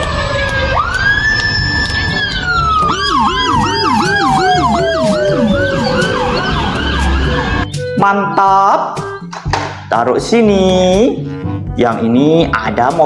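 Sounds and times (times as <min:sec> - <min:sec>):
siren wail: 0:00.0 - 0:07.9
rapid siren yelp: 0:00.0 - 0:08.0.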